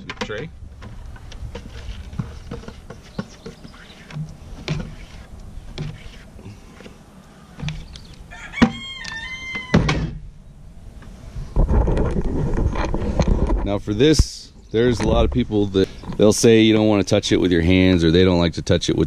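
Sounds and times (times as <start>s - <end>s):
rooster crowing: 8.3s - 10.0s.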